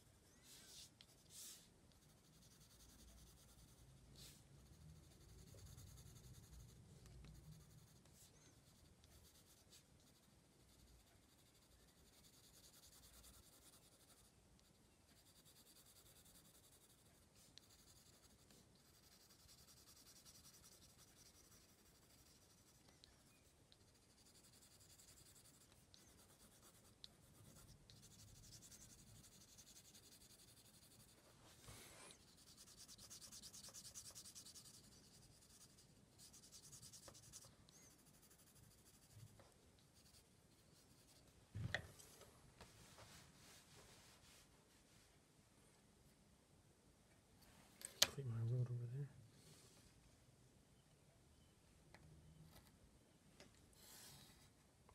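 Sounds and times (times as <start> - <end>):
pencil scratching on card: 0.7 - 41.3.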